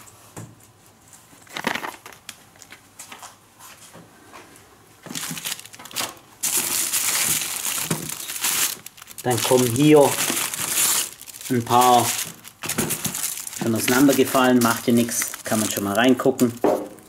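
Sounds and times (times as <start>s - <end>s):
packets crinkling in cardboard box: 1.4s - 2.7s, 5.1s - 16.6s.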